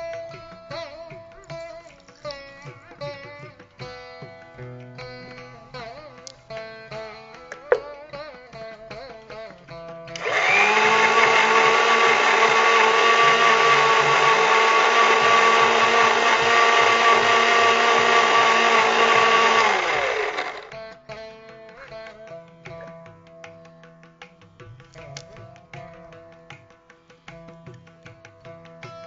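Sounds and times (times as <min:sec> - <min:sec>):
electric mixer grinder whining: 0:10.2 - 0:20.7.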